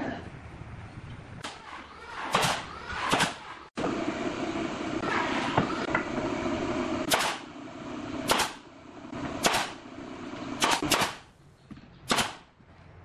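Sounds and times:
nail gun firing: 0:01.4 - 0:03.5, 0:07.1 - 0:07.5, 0:08.2 - 0:08.6, 0:09.4 - 0:09.8, 0:10.6 - 0:11.3, 0:12.1 - 0:12.5.

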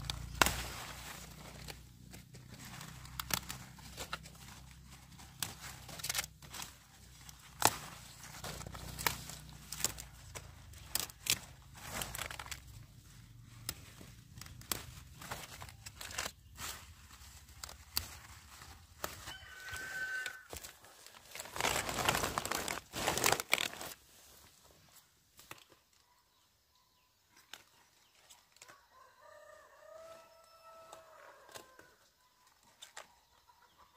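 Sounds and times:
crackling and snapping: 0:00.0 - 0:24.0
rustling: 0:00.0 - 0:25.7
chicken calling: 0:19.2 - 0:20.6.

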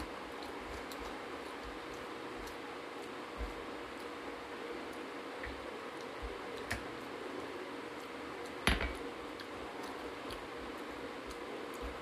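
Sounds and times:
fingers mixing rice on metal plate: 0:00.0 - 0:12.0
steady hiss: 0:00.0 - 0:12.0
dishes clinking: 0:08.6 - 0:09.0.

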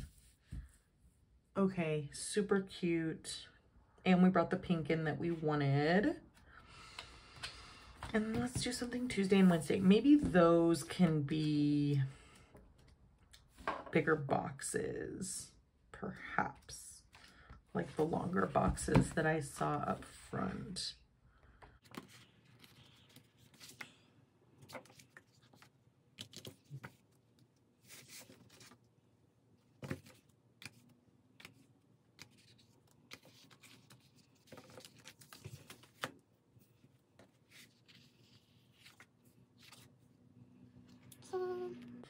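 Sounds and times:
paper pages rustling: 0:21.8 - 0:24.0, 0:24.6 - 0:28.9, 0:29.8 - 0:40.0.

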